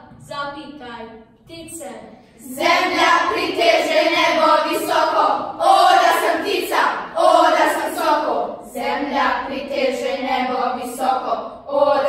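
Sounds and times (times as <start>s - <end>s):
children reciting in unison: 2.4s - 12.0s.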